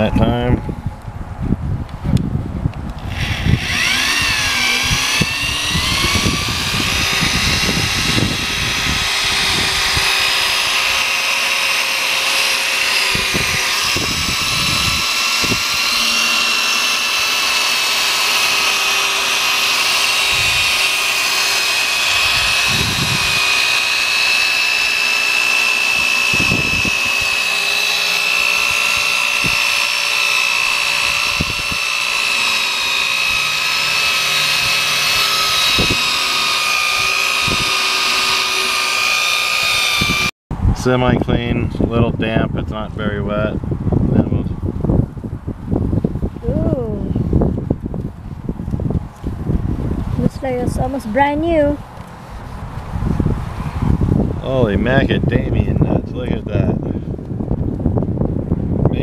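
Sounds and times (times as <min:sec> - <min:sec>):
power drill motor whine: 0:03.0 - 0:40.4.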